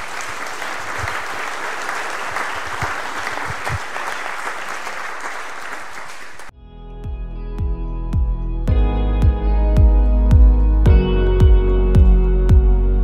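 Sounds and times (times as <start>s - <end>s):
audience applauding: 0.0s - 6.5s
music with plucked ringing notes: 6.6s - 13.0s.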